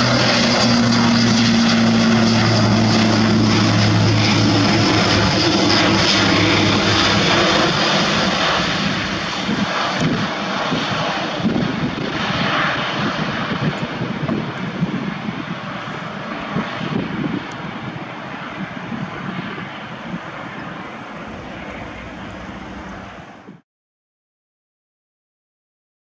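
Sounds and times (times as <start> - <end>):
turboprop aircraft droning: 0.0 - 23.6.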